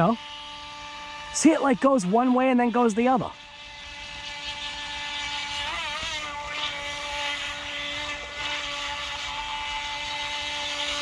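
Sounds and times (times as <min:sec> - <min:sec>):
small electric motor whining: 0:00.0 - 0:11.0.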